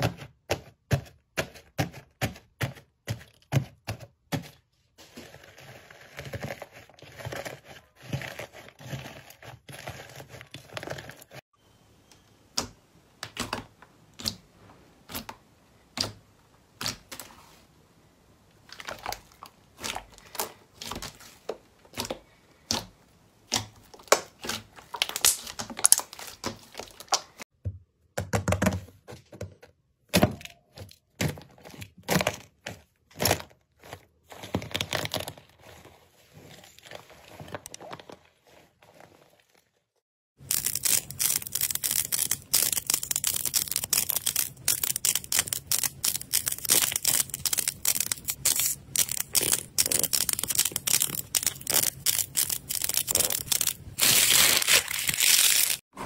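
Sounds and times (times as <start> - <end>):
dried slime crust crackling: 18.6 - 27.4, 40.4 - 55.8
slime clicking and popping: 40.5 - 53.8.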